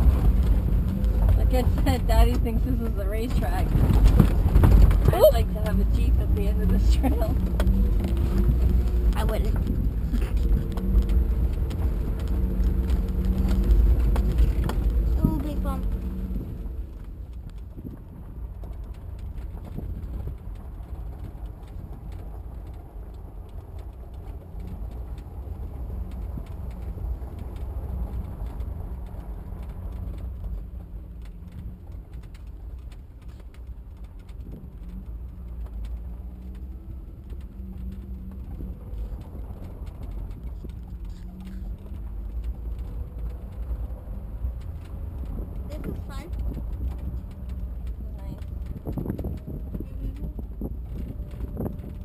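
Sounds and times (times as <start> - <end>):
engine and road rumble: 0.0 - 52.0
car body knocks and rattles: 3.6 - 5.5.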